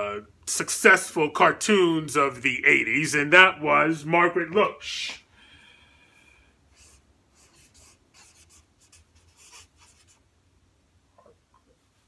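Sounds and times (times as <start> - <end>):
marker pen writing on paper: 6.8 - 10.2.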